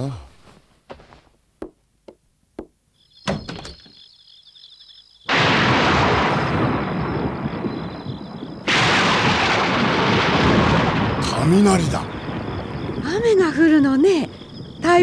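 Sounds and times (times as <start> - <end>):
wooden shutters clacking open: 2.6 - 4.0
thunder rumbling: 5.3 - 15.0.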